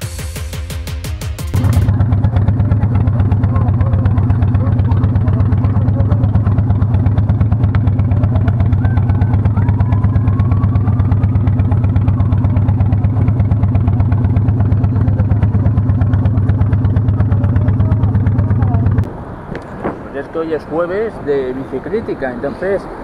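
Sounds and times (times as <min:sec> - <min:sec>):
motorcycle engine idling: 0:01.4 - 0:19.1.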